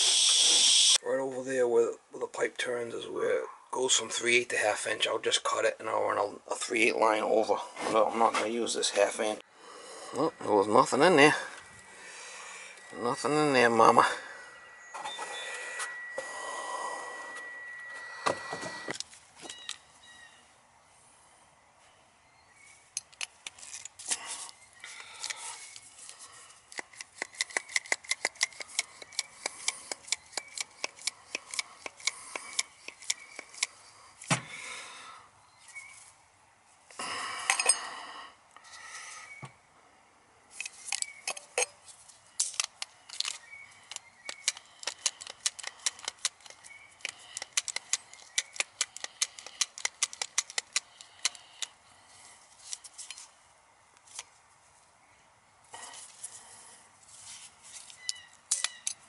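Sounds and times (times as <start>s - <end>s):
metal scraping: 10.0s - 19.2s
metallic clicking of hand tools: 26.7s - 33.7s, 42.4s - 51.7s, 58.0s - 59.0s.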